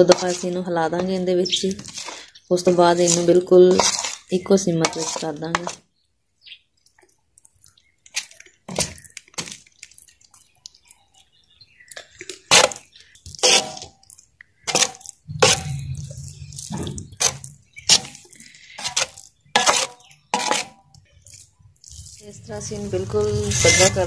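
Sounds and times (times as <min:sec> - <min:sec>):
metal spoon scraping steel tray: 0:00.0 - 0:05.8, 0:12.4 - 0:24.0.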